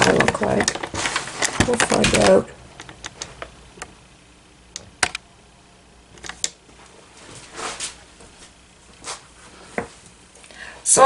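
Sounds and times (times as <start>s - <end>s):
short rustle: 6.7s - 10.2s.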